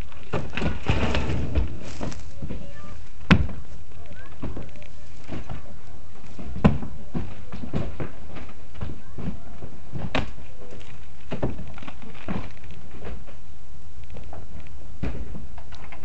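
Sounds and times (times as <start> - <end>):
rubble clattering: 0.0 - 16.0.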